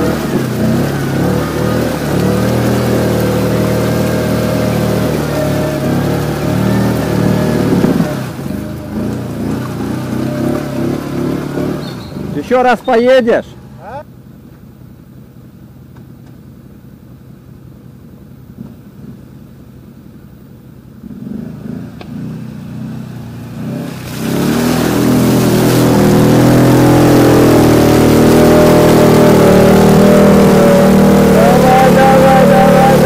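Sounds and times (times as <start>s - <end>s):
atv engine revving: 0.0s - 14.0s, 20.9s - 33.0s.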